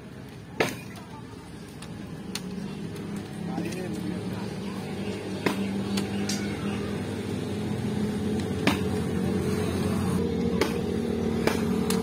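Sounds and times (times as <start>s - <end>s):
steady mechanical hum: 0.0s - 12.0s
bamboo sticks clacking: 0.2s - 4.0s, 5.4s - 6.6s, 8.3s - 9.0s, 11.4s - 12.0s.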